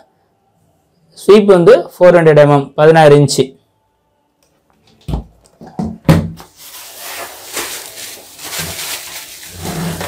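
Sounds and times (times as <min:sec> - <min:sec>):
plastic wrapping crinkling: 0:06.4 - 0:10.0.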